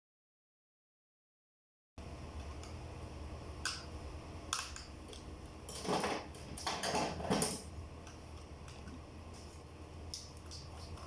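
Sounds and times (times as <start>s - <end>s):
steady low hum: 2.0s - 11.0s
scraping and crunching handling noise: 4.5s - 9.8s.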